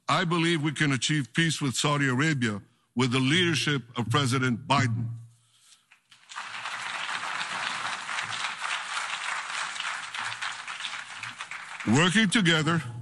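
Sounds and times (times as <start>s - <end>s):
audience applauding: 6.1s - 12.8s.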